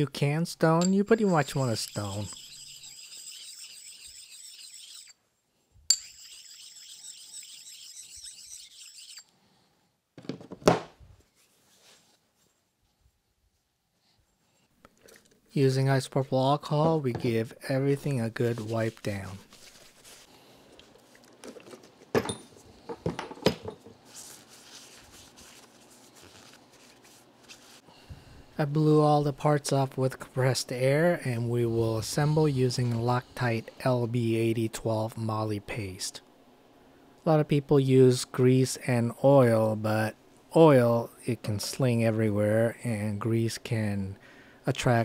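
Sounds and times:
paper towel rubbing on metal: 1.2 - 5.1, 6.2 - 9.2, 18.3 - 20.3
sharpening stone scraping metal: 1.2 - 5.2, 5.9 - 9.3.

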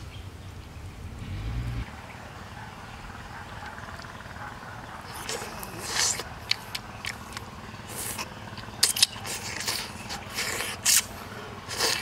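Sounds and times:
lip-smacking: 3.3 - 12.0
wet chewing: 3.3 - 12.0.

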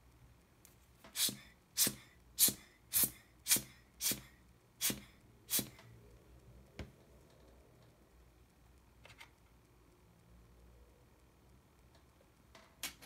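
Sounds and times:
hand air blower puffing: 1.1 - 5.8.

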